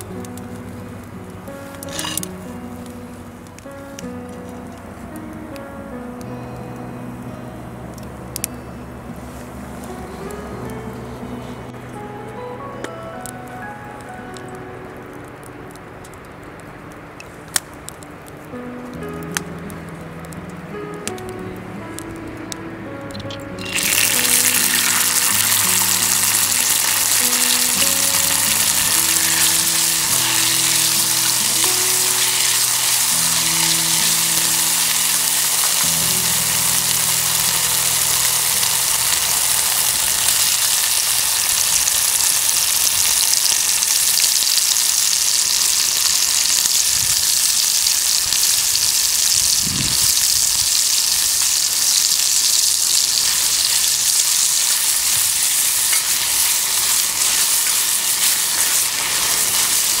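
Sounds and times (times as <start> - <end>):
food sizzling in a hot pan: 0.0 - 4.6, 23.2 - 60.0.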